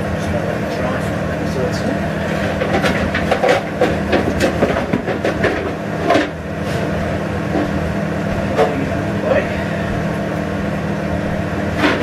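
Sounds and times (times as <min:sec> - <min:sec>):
steady mechanical hum: 0:00.0 - 0:12.0
pans and crockery clattering: 0:02.5 - 0:06.4.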